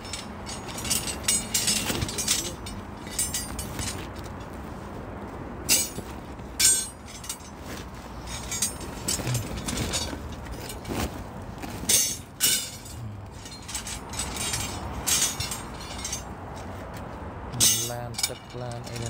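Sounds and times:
steel rebar clinking: 0.0s - 4.3s, 5.6s - 11.1s, 11.7s - 16.8s, 17.5s - 19.0s
plastic bag rustling: 7.5s - 11.9s.

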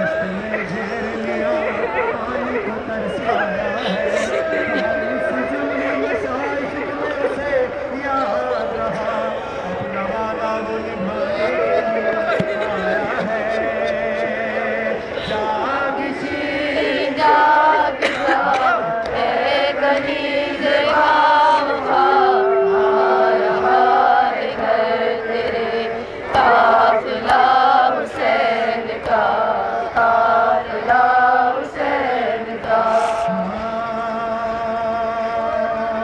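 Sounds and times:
man chanting through loudspeakers: 0.0s - 16.9s.

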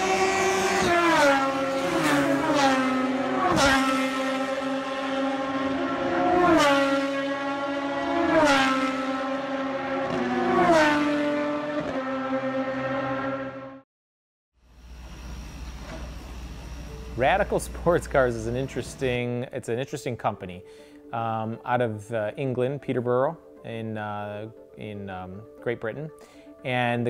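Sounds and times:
race car engines at high revs: 0.0s - 13.8s.

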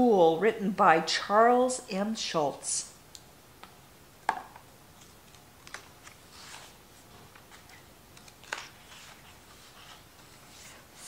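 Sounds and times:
soft page rustle: 4.9s - 11.0s
book cover being turned: 5.0s - 11.0s.

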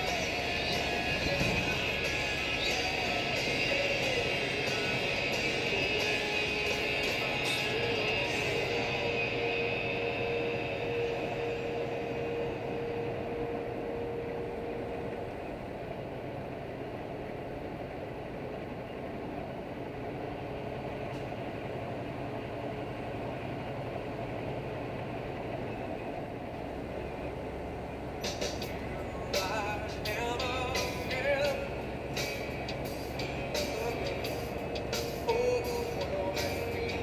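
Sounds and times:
faint steady note: 0.0s - 17.2s
truck engine and road noise: 0.0s - 37.0s.

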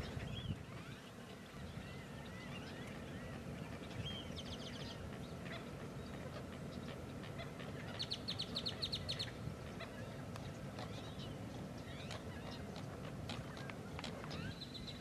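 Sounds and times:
marsh birds calling: 0.0s - 15.0s
outdoor background noise: 0.0s - 15.0s.

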